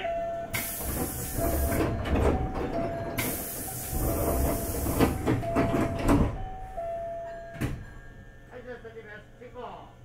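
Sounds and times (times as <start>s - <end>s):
air hiss: 0.6s - 1.6s, 3.2s - 5.0s
sliding doors knocking shut: 0.6s - 6.4s.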